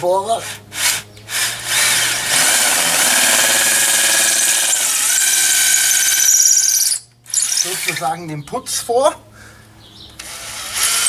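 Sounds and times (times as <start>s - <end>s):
electric drill whining: 0.8s - 8.0s, 10.2s - 11.0s.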